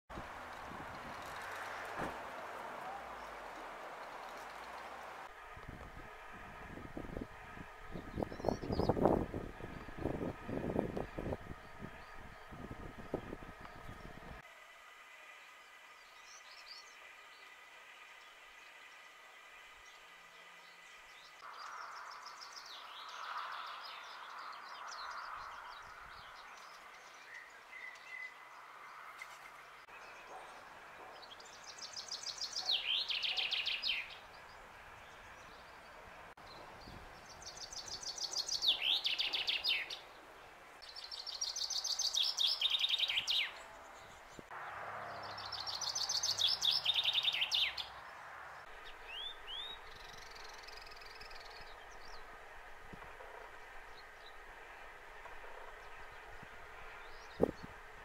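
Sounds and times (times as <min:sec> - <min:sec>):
chaffinch singing: 0:07.4 - 0:14.4, 0:15.3 - 0:44.5, 0:45.2 - 0:52.5
quiet scratchy bird song: 0:15.2 - 0:58.0.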